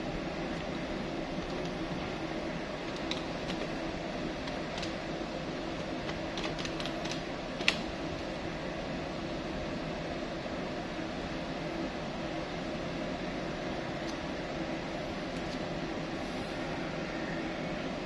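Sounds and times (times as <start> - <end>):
steady mechanical hum: 0.0 - 18.0
calculator keys clicking: 2.8 - 3.8, 4.4 - 5.0, 5.8 - 7.8.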